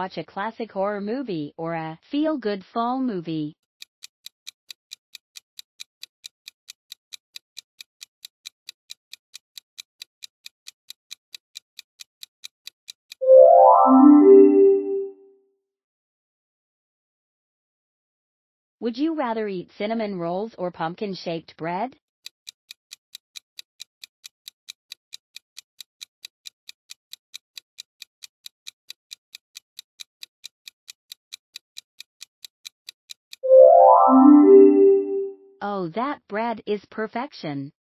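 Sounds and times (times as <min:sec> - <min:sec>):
clock ticking: 0:03.8 - 0:14.8, 0:22.2 - 0:33.6
rising keyboard chime: 0:13.2 - 0:15.1, 0:33.4 - 0:35.4.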